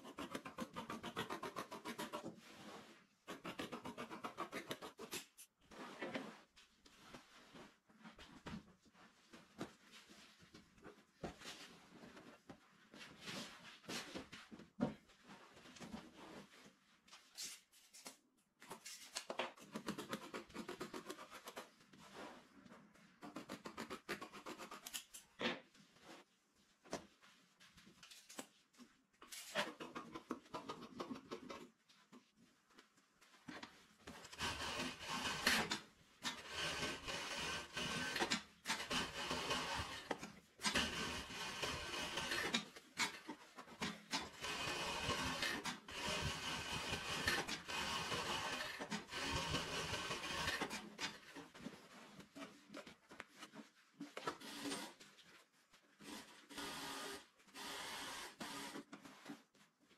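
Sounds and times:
scissors cutting fabric: 0:00.0 - 0:02.3, 0:03.2 - 0:05.5, 0:17.4 - 0:21.7, 0:23.2 - 0:25.3, 0:34.1 - 0:51.4
industrial sewing machine running: 0:36.3 - 0:40.1, 0:44.3 - 0:50.7.

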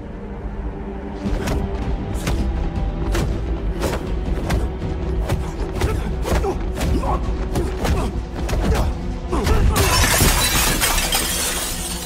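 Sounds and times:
dramatic music score: 0:00.0 - 0:12.0
glass shattering: 0:09.8 - 0:12.0.

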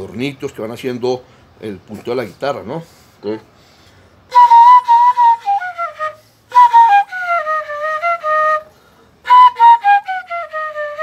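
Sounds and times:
flute playing ornamental phrases: 0:04.3 - 0:11.0.

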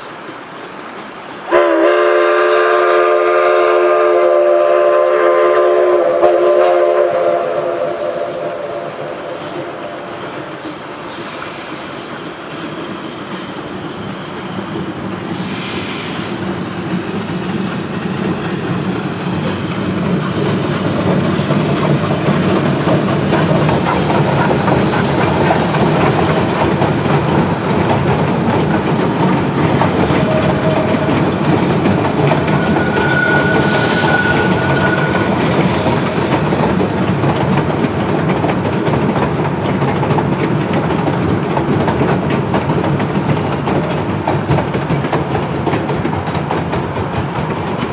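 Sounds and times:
steam locomotive exhaust: 0:01.5 - 0:47.9
wheels clattering on rail: 0:04.6 - 0:47.9
high squeal: 0:32.2 - 0:36.0.

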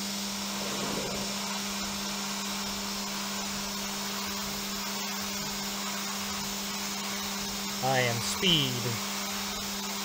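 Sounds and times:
milling spindle hum: 0:00.0 - 0:04.8
air blast hiss: 0:00.3 - 0:02.1.

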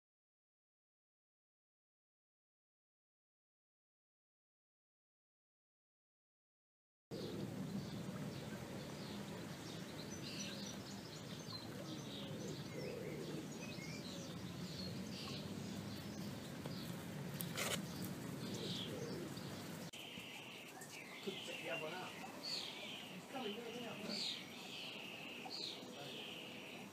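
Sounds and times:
small birds chirping: 0:07.1 - 0:26.9.

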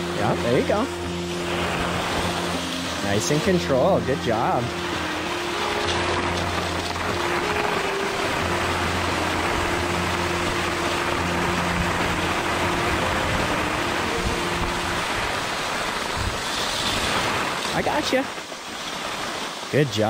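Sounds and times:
skis sliding on packed snow: 0:00.0 - 0:20.0
wind rushing over microphone: 0:06.8 - 0:18.4.

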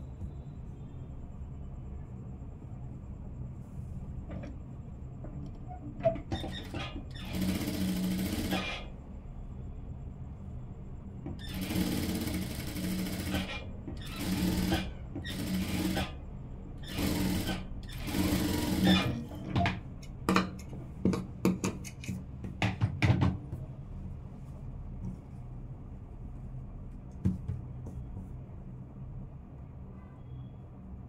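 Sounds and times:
steady low hum: 0:00.0 - 0:06.2, 0:08.0 - 0:11.4, 0:23.4 - 0:31.0
industrial sewing machine stitching: 0:06.4 - 0:08.9, 0:11.4 - 0:16.2, 0:16.8 - 0:19.4.

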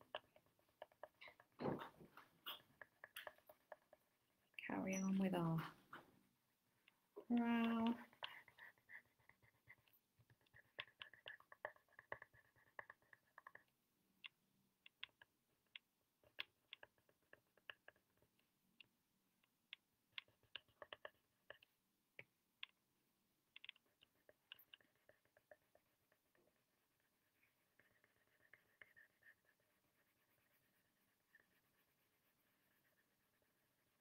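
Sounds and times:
pencil scratching on paper: 0:08.0 - 0:13.7, 0:23.8 - 0:34.0.

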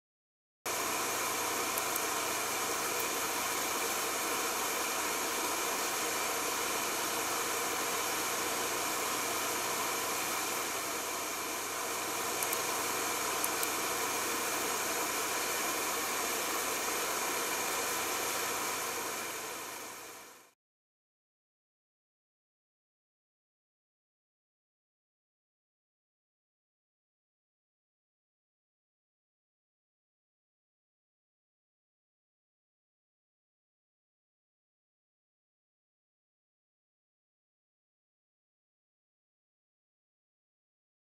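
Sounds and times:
laser engraver fan noise: 0:00.7 - 0:20.5.

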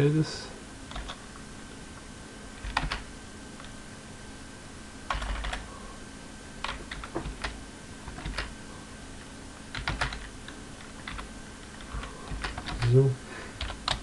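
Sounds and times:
computer keyboard typing: 0:00.9 - 0:01.2, 0:02.6 - 0:03.1, 0:05.1 - 0:05.7, 0:06.6 - 0:08.5, 0:09.7 - 0:14.0.

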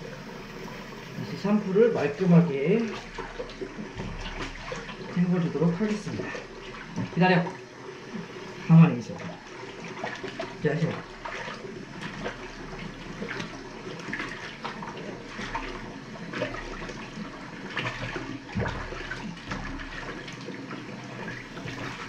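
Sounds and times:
water splashing in a basin: 0:00.0 - 0:22.0.

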